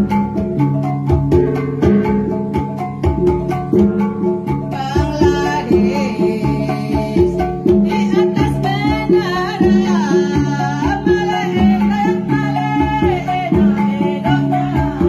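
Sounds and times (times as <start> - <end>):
gongs playing fast pattern: 0.0 - 15.0
person singing wavering melody: 4.6 - 15.0.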